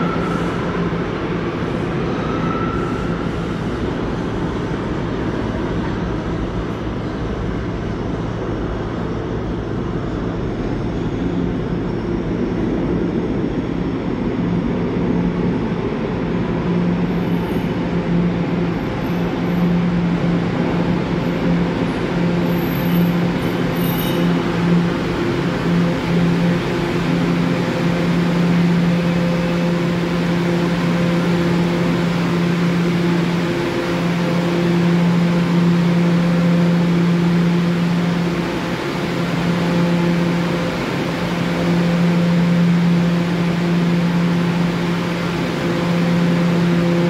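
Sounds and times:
steady low hum: 0.0 - 47.0
subway train rumbling in tunnel: 0.0 - 47.0.

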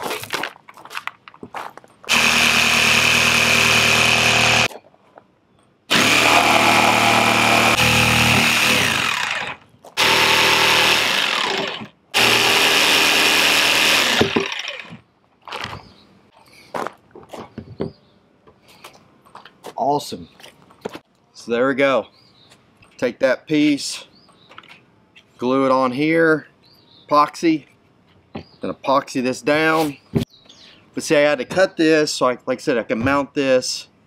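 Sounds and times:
jigsaw cutting plastic: 2.1 - 4.7, 5.9 - 15.0.

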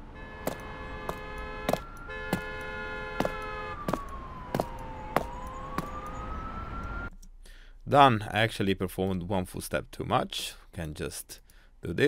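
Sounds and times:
busy city street ambience: 0.0 - 7.5
siren gliding up and down: 0.1 - 7.1
heel footsteps on concrete: 0.5 - 5.9.

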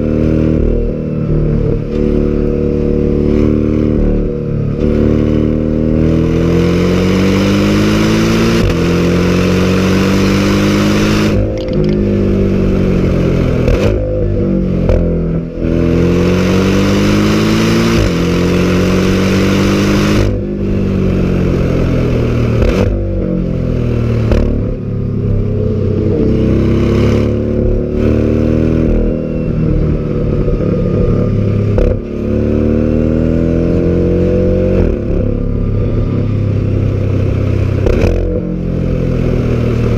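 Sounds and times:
sports car accelerating hard: 0.0 - 39.9.

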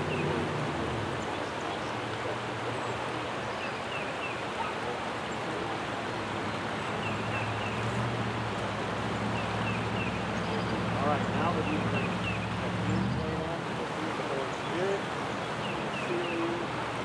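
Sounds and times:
river water rushing: 0.0 - 17.0.

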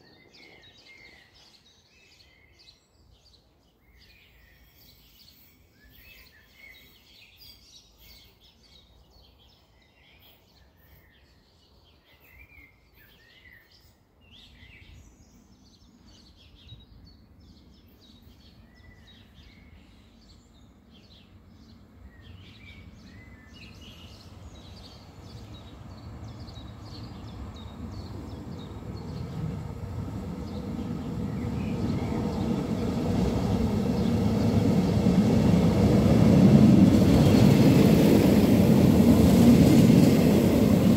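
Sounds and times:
small birds chirping: 0.0 - 40.9
train rumble: 24.1 - 40.9.

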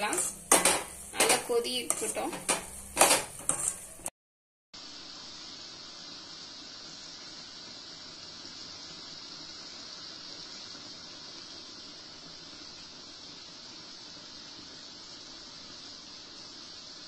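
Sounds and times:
ladle clattering against pan: 0.5 - 3.8
thick mixture bubbling in oil: 4.8 - 17.0.

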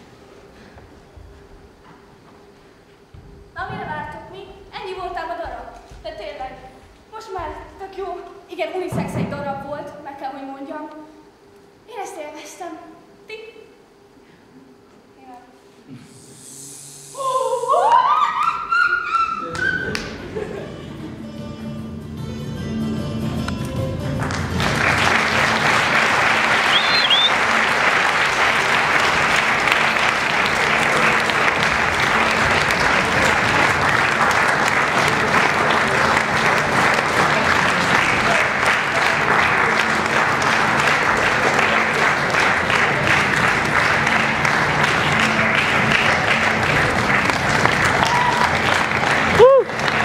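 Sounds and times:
closing music: 19.5 - 50.0
audience applauding: 24.1 - 50.0.

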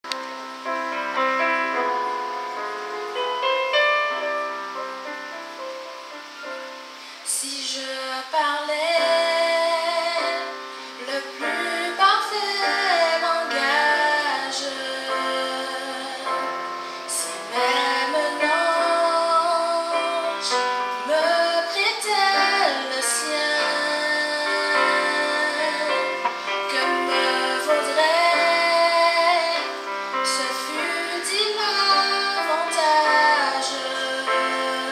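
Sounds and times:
keyboard playing: 0.0 - 7.2, 8.8 - 34.9
woman singing into microphone: 7.0 - 34.9.

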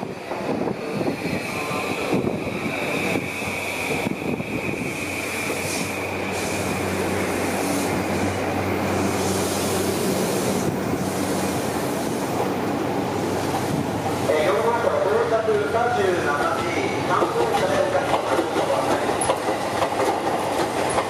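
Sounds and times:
electric train rumbling by: 0.0 - 21.0.

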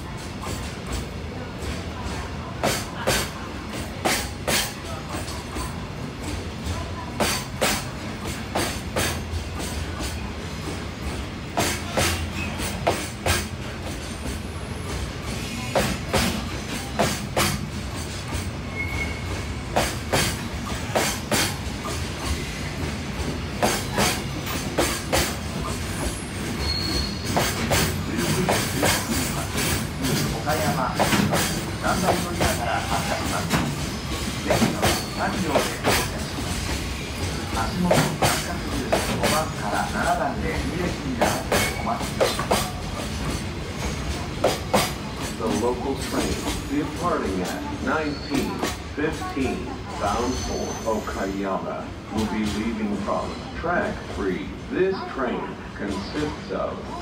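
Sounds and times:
train wheels clicking over rail joints: 0.0 - 1.9, 2.6 - 47.6
train rumble: 0.0 - 57.0
wheel squeals: 18.6 - 19.5, 25.9 - 27.9, 47.9 - 48.6, 50.1 - 51.1.

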